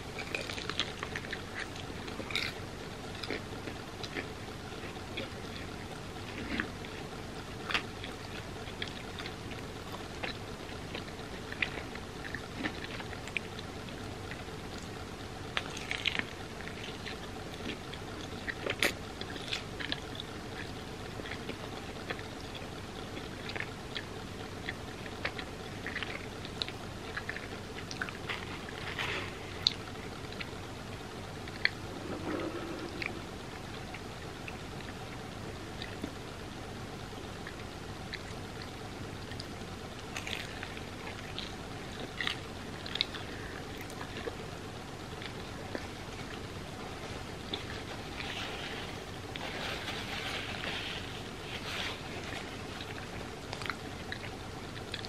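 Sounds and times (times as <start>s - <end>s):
faint background hiss: 0.0s - 55.0s
food crunches: 0.2s - 5.4s, 15.5s - 30.6s, 38.1s - 44.4s.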